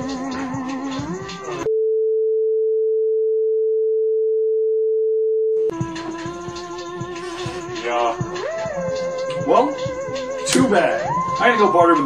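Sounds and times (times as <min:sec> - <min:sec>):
synth music: 0:05.7 - 0:12.0.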